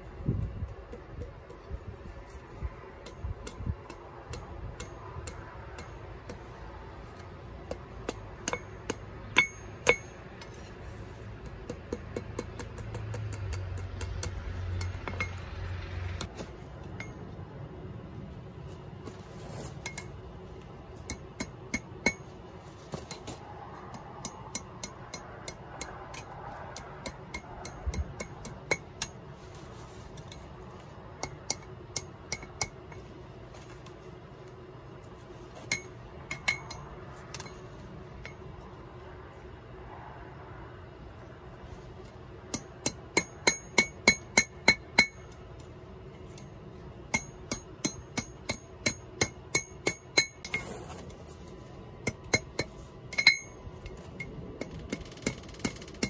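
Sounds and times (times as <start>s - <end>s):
hammer striking iron on anvil: 3.0s - 6.5s, 7.6s - 10.7s, 11.4s - 15.6s, 21.0s - 29.3s, 31.2s - 33.0s, 35.6s - 37.6s, 42.4s - 45.4s, 46.3s - 50.7s, 52.0s - 56.0s.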